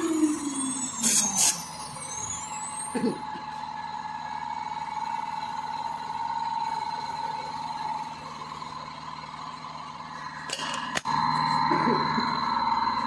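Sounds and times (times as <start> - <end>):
router spindle whine: 0.0 - 13.0.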